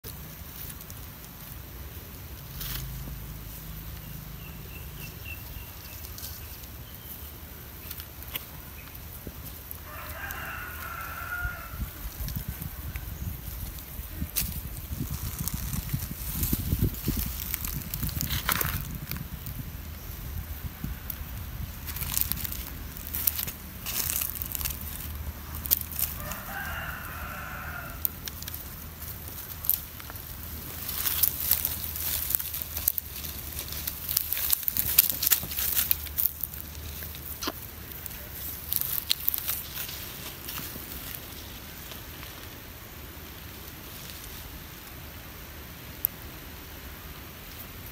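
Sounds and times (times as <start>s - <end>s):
sharp crackles and clicks: 0.0s - 42.7s
rooster crowing: 9.8s - 12.0s, 26.1s - 28.2s
low rumble on microphone: 10.6s - 42.9s.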